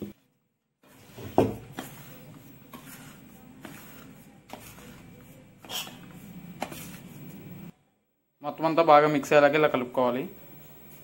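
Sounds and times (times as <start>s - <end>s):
spoon stirring dry mix: 0.0s - 7.7s
spoon scraping bowl: 0.9s - 7.7s.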